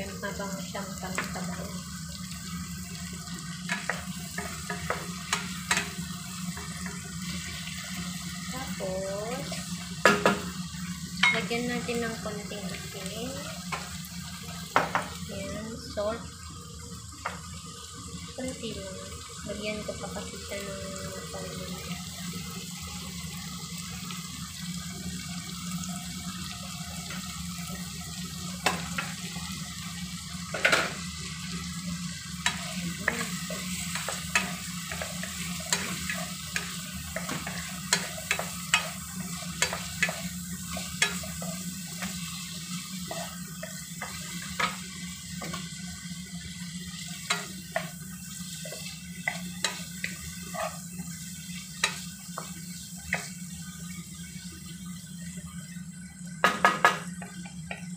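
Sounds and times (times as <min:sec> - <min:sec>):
food sizzling in a frying pan: 0:00.0 - 0:57.9
spatula knocking and scraping pan: 0:03.7 - 0:07.0, 0:14.7 - 0:15.2, 0:32.4 - 0:42.4, 0:43.0 - 0:45.8, 0:47.1 - 0:50.9.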